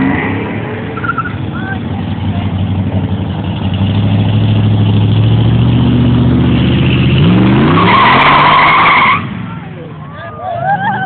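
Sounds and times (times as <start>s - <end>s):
car engine revving: 0.0s - 10.2s
tyre squeal: 1.0s - 1.4s.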